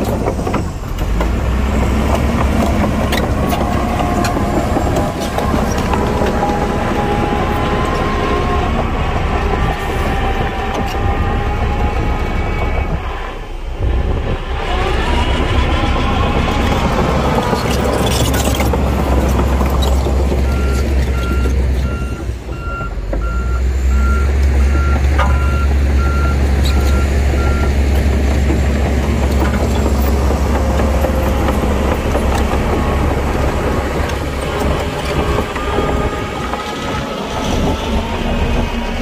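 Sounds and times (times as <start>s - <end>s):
diesel engine drone: 0.0s - 39.0s
reversing alarm beeps: 20.5s - 27.8s.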